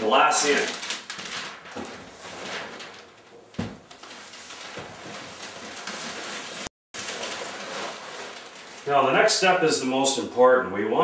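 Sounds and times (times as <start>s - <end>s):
packing paper rustling: 0.0s - 9.6s
dull thump: 3.6s - 3.9s.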